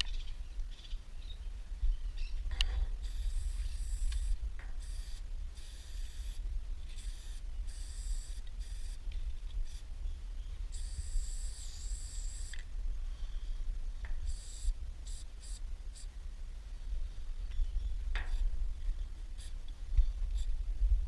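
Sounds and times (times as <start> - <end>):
steady low rumble: 0.0 - 21.0
spray-paint can hissing: 3.0 - 9.0, 10.7 - 12.6, 14.2 - 16.1.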